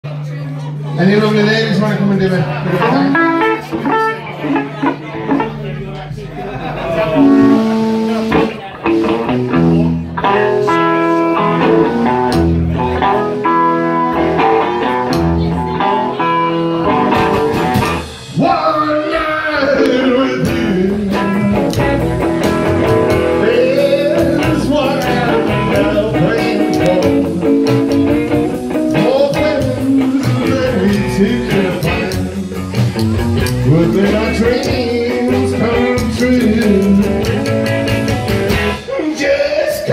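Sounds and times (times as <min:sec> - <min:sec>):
guitar riff: 0:00.6 - 0:39.9
rockabilly blues band playing: 0:00.6 - 0:39.9
person singing: 0:18.3 - 0:37.6.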